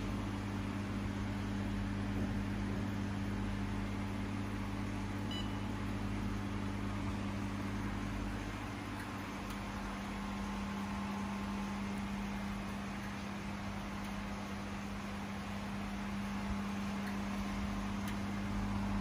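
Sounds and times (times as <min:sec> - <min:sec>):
machine humming with fan noise: 0:00.0 - 0:19.0
short high beep: 0:05.3 - 0:05.7.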